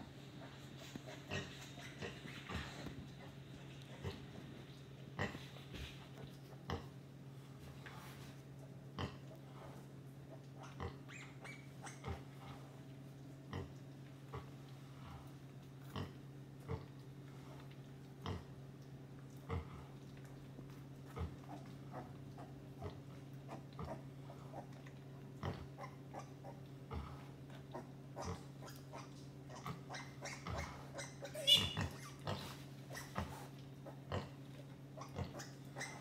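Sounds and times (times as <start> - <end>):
pig grunts: 0.0 - 4.4, 5.2 - 5.8, 8.9 - 11.2, 13.5 - 17.0, 18.2 - 18.5, 19.4 - 20.0, 21.1 - 24.8, 25.4 - 34.4, 35.0 - 36.0
steady low hum: 0.0 - 36.0.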